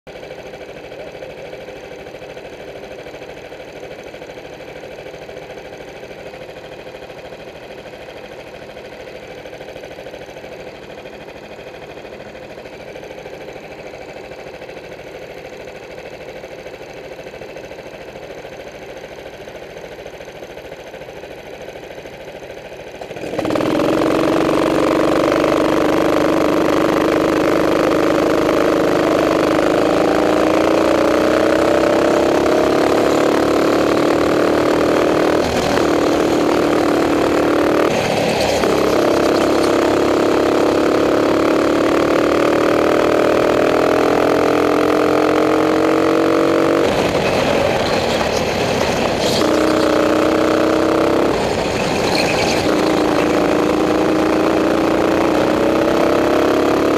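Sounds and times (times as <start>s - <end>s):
kart engines idling: 0.1s - 56.9s
kart engine revving: 22.9s - 56.9s.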